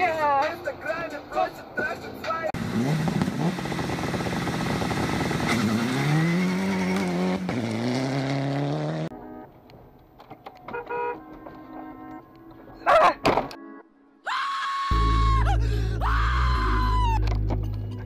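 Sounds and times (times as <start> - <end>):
rally car engine revving: 2.6 - 9.1.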